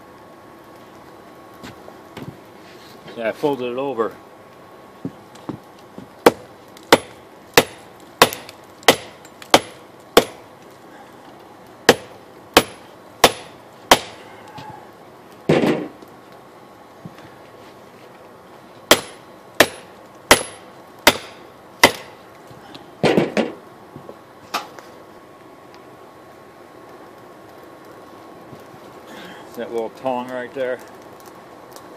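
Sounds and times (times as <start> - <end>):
hammer striking steel on anvil: 11.9 - 14.2, 18.9 - 22.1.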